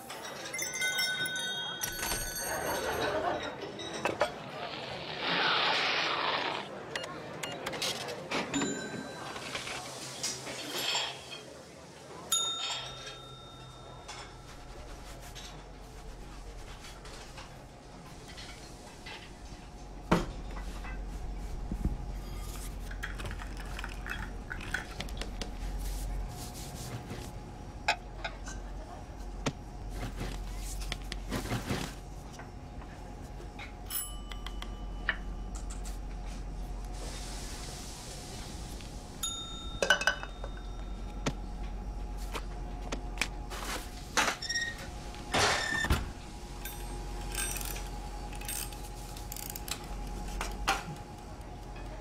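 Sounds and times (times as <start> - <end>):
kitchenware clinking: 0.0 - 4.4, 10.3 - 11.6, 12.4 - 14.5, 39.2 - 41.1, 46.6 - 48.8
order bell ringing: 0.5 - 4.0, 12.3 - 14.1, 33.9 - 35.1, 39.2 - 41.1, 46.6 - 47.8
kitchen clatter and knocks: 1.7 - 4.4, 39.7 - 40.7.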